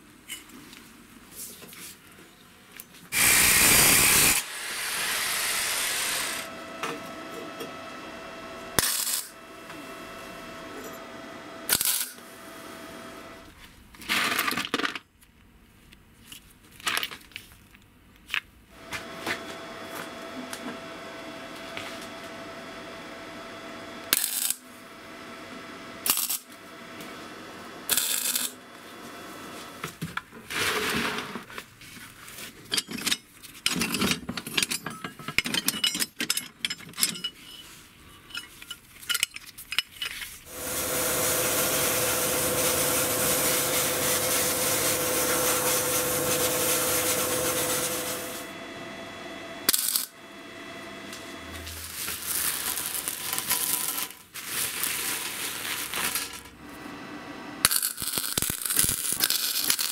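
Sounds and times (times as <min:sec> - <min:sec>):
small power tool running: 0:03.1 - 0:13.4, 0:18.8 - 0:29.8, 0:40.5 - 0:54.0
metal parts clinking: 0:32.7 - 0:40.4.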